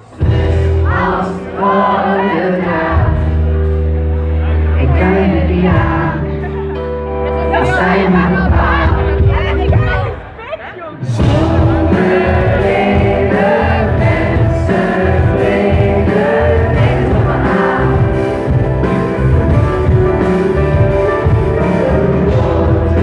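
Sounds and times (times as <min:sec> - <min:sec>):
live band playing: 0:00.0 - 0:23.0
person singing: 0:04.5 - 0:10.1, 0:11.0 - 0:23.0.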